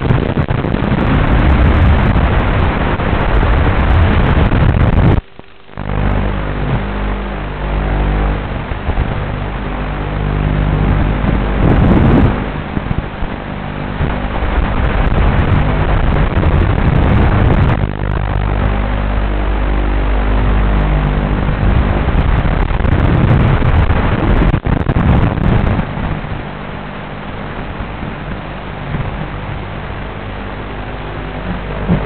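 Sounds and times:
wind rushing: 0.0 - 5.3, 10.8 - 19.0, 20.2 - 26.5
drone motors and propellers: 0.0 - 32.0.

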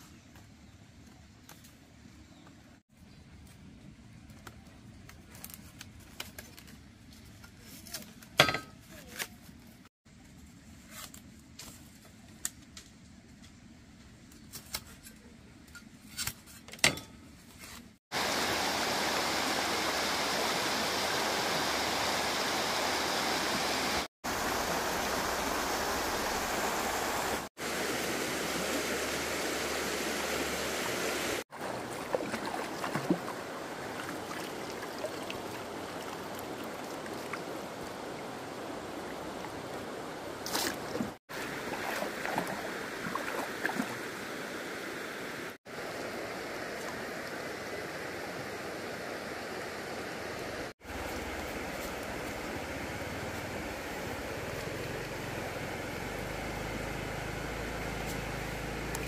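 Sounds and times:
bamboo strips clicking and rustling: 4.2 - 9.6
stream rushing over rocks: 18.1 - 57.3
water sloshing in a net: 31.5 - 39.8, 40.4 - 44.1.

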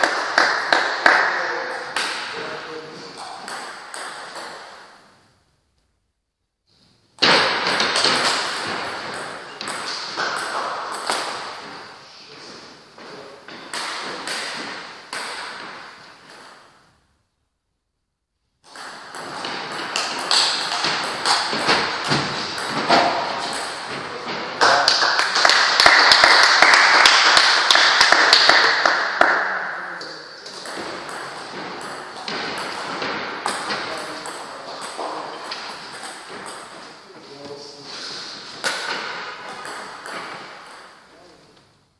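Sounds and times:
footsteps: 19.2 - 24.9.

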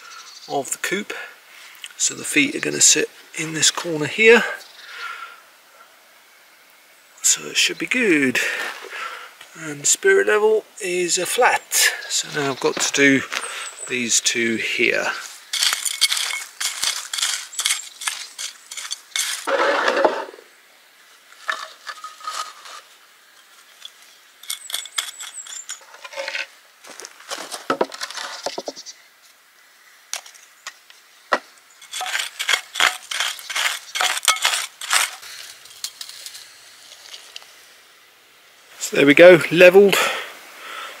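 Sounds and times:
scraping and digging gravelly soil: 0.4 - 5.1, 7.2 - 29.3, 30.1 - 37.9
small stones clinking: 15.0 - 20.4, 21.4 - 28.8, 31.8 - 37.4.

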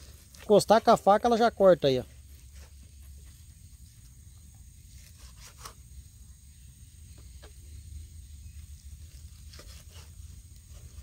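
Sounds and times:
knife slicing raw meat: 5.0 - 5.8, 9.2 - 10.1.

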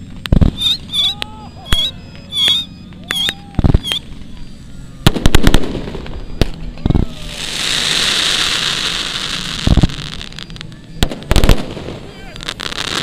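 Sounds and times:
pyrotechnic charge bangs: 0.0 - 1.1, 5.0 - 13.0.

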